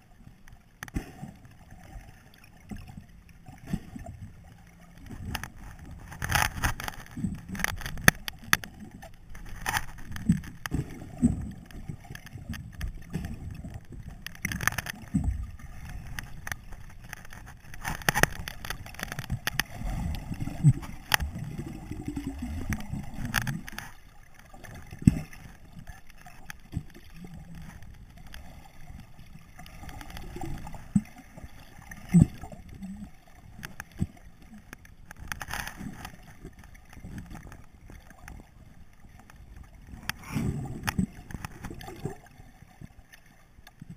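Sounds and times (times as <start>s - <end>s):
underwater water gurgling: 0.0s - 43.9s
sharp clicks and knocks: 4.9s - 24.0s.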